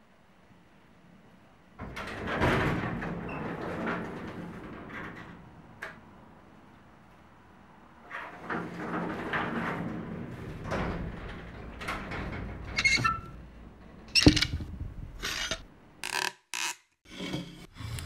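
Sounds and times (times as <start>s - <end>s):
garage door banging shut: 1.8s - 6.0s, 8.1s - 15.6s
garage door rattling and rumbling: 1.8s - 6.6s, 7.9s - 15.7s
metallic squeal: 12.7s - 13.4s.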